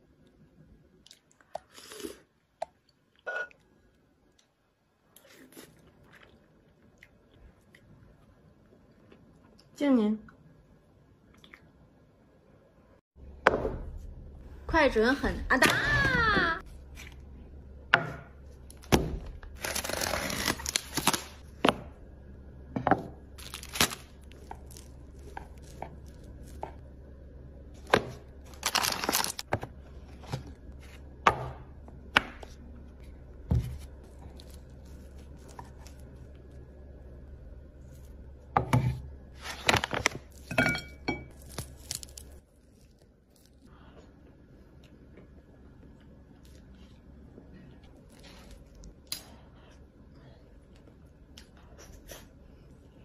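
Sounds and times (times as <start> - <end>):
knife scraping and crinkling: 19.6 - 21.4.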